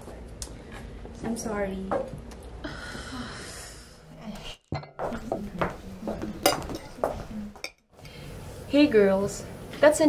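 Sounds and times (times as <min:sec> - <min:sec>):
cutlery clinking on plates: 0:06.2 - 0:07.8.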